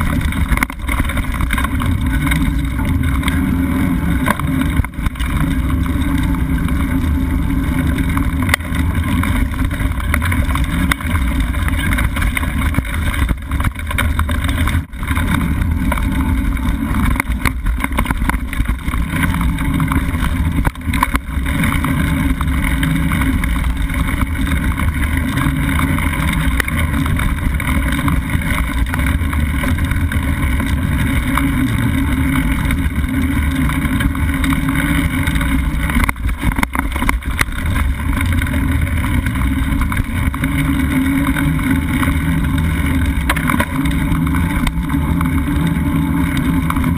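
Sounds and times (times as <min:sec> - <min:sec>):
wind and bike riding rumble: 0:00.0 - 0:46.9.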